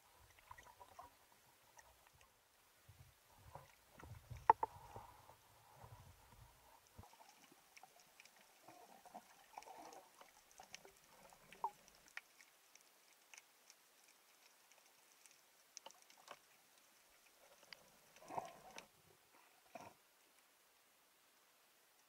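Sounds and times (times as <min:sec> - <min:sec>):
faint underwater clicks: 0:00.2 - 0:02.4, 0:03.5 - 0:20.5.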